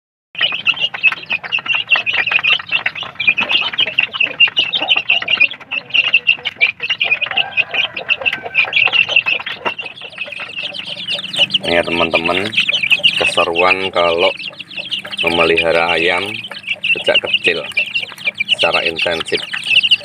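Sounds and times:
chicks peeping: 0.4 - 20.0.

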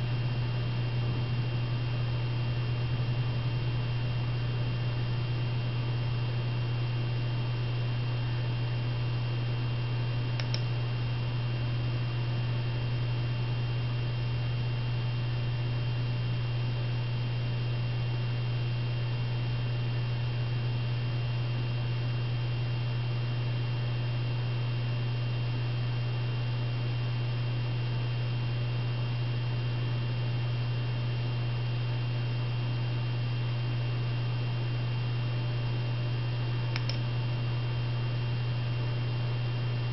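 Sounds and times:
low electrical hum: 0.0 - 39.9
faint tick: 10.4 - 10.7, 36.8 - 37.0.

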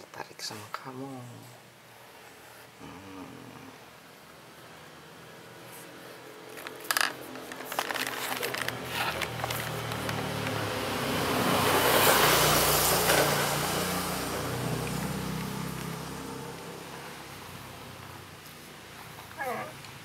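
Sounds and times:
vehicle passing by: 4.6 - 19.0.

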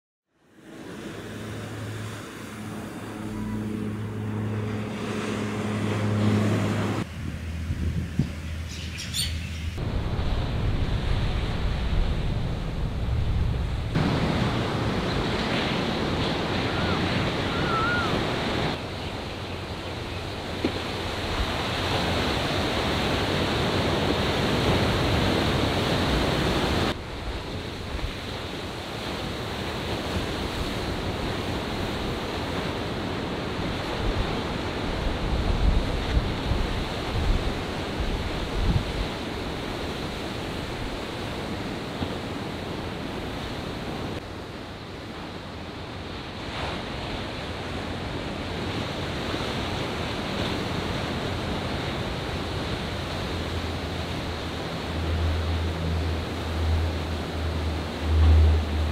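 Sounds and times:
waves breaking: 0.5 - 8.6, 9.6 - 58.9
wind buffeting microphone: 7.0 - 8.8, 33.7 - 41.3.

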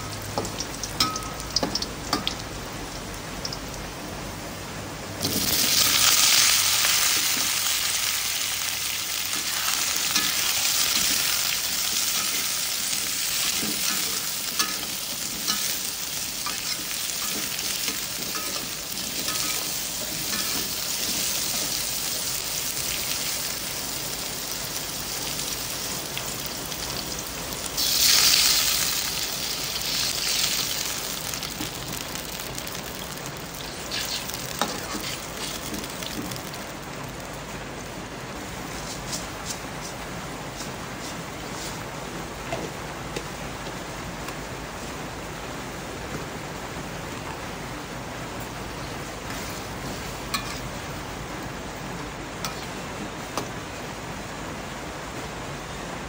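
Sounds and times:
food sizzling in hot oil: 0.0 - 3.9, 5.2 - 37.6, 49.2 - 51.2, 52.2 - 53.5
liquid sizzling in hot wok: 0.0 - 4.4, 5.0 - 44.3, 47.9 - 55.2
metal spatula scraping wok: 13.3 - 21.8, 33.7 - 35.8.

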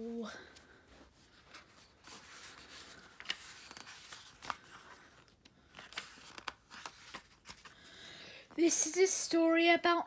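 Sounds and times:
paper pages rustling: 1.1 - 8.0
sharp paper crackles: 2.1 - 7.8.

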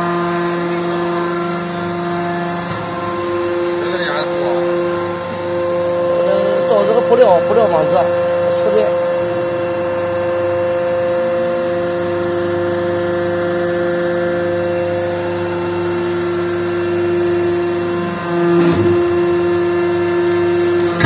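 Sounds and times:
hydraulic press whine: 0.0 - 21.0.

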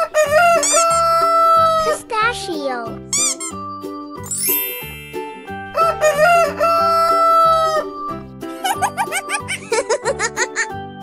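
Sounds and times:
children's music with steady beat: 0.9 - 11.0
rooster crowing: 5.7 - 7.8.

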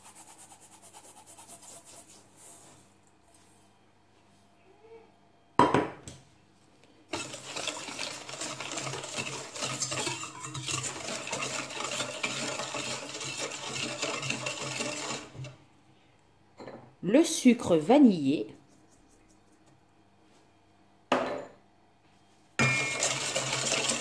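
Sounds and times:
whisk beating in a metal bowl: 7.1 - 15.6, 22.6 - 24.0.

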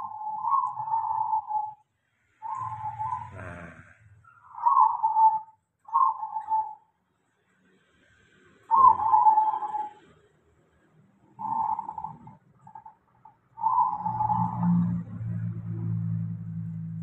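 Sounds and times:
doves cooing: 0.0 - 1.8, 2.4 - 6.8, 8.7 - 10.1, 11.4 - 14.9.

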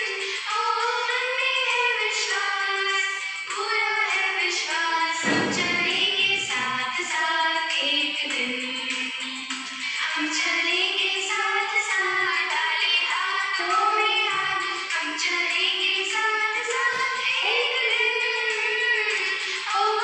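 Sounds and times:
woman singing slowly: 10.0 - 20.0.

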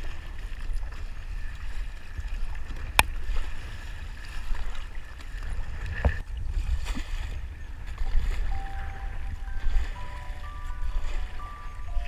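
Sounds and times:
paddle splashing water: 0.0 - 12.0
water lapping on kayak hull: 0.0 - 12.0.

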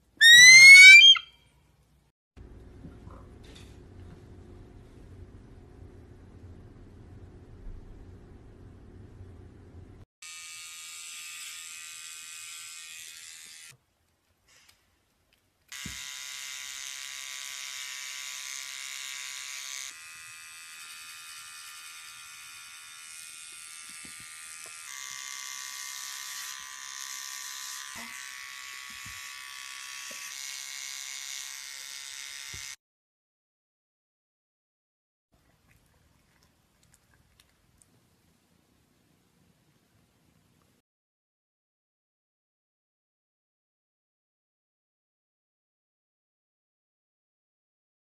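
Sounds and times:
electric hair trimmer buzzing: 10.2 - 13.8, 15.7 - 32.8.

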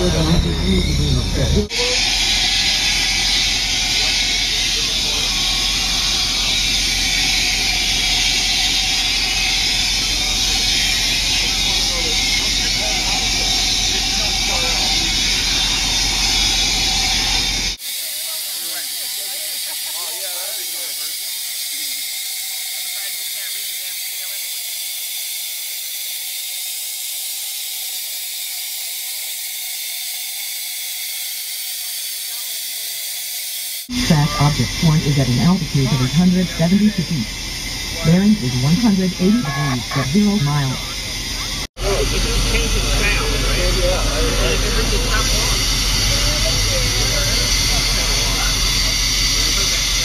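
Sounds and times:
gas hissing through hose: 0.0 - 41.7, 44.8 - 50.0.

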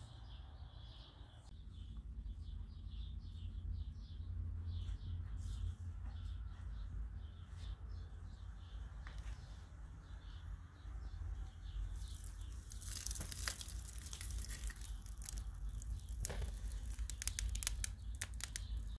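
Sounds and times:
dry tinder crackling: 11.9 - 19.0.

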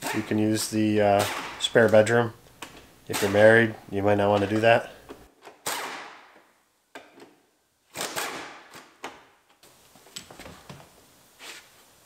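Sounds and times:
impact wrench hammering: 1.2 - 1.7.

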